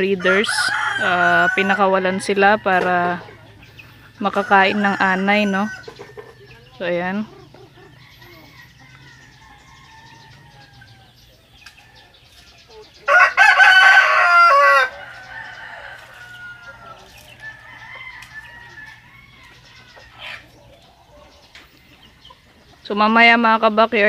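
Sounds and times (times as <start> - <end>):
faint chicken calls: 0.0 - 22.9
rooster crowing: 0.1 - 3.2, 4.4 - 5.9, 8.0 - 11.1, 13.1 - 20.4.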